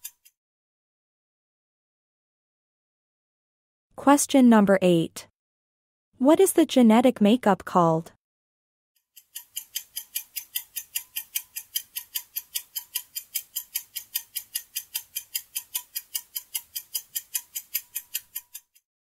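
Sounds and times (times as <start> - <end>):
fast clock ticking: 9.1 - 18.8.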